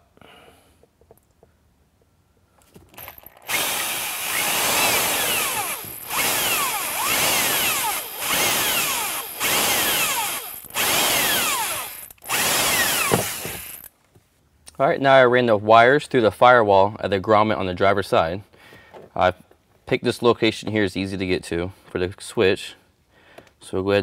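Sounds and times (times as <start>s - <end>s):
cordless drill whining into plastic: 2.9s - 13.9s.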